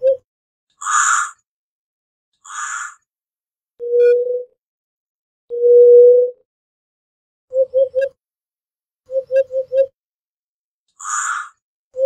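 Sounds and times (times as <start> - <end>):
bird harsh rasping calls: 0.8 - 1.4, 2.4 - 3.1, 11.0 - 11.6.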